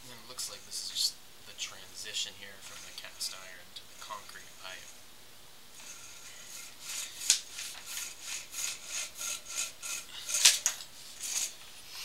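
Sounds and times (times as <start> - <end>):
cable rubbing strokes: 0.1 - 5.1, 5.7 - 12.0
cable scraping: 2.5 - 5.0, 5.8 - 11.7.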